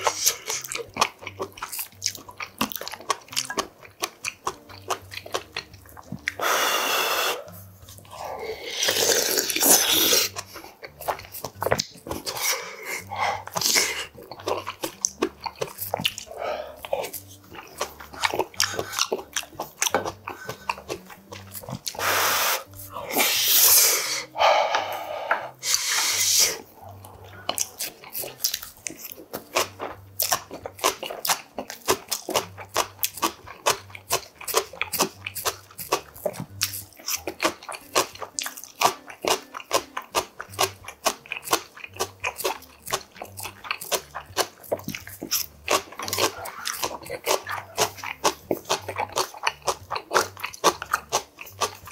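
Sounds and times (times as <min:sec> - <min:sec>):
wet chewing and mouth smacks: 0:00.0 - 0:51.9
loud drawn-out slurps: 0:08.2 - 0:10.4, 0:21.9 - 0:26.8.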